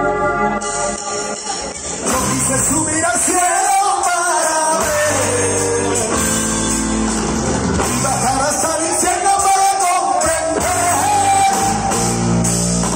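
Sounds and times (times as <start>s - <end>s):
live rock band: 0.0s - 12.9s
person singing: 2.0s - 6.8s, 7.8s - 12.6s.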